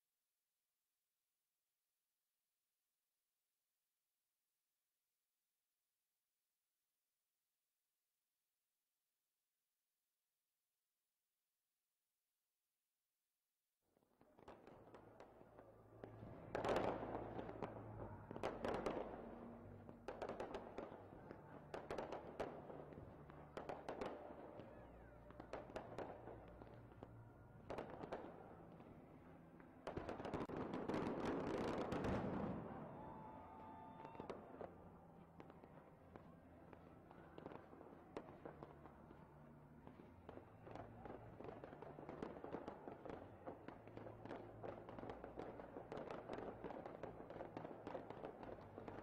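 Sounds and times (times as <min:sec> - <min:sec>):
fireworks bangs and crackling: 0:14.1 - 0:49.0.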